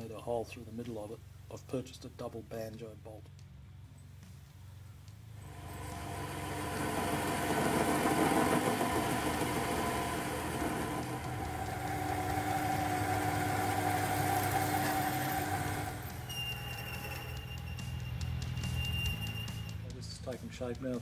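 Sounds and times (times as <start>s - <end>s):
lathe motor whine: 5.4s - 17.9s
metal cutting noise: 5.4s - 18.0s
steady high tone: 5.4s - 19.8s.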